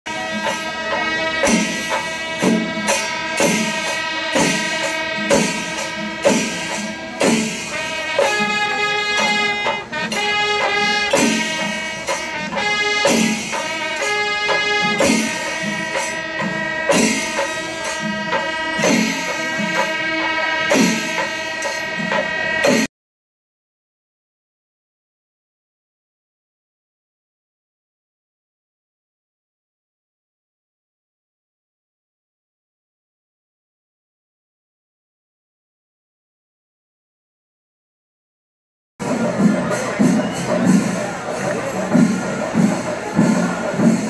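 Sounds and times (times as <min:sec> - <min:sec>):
drum beat: 0:00.1 - 0:22.9, 0:39.0 - 0:44.0
wind instrument melody: 0:00.1 - 0:22.9, 0:39.0 - 0:44.0.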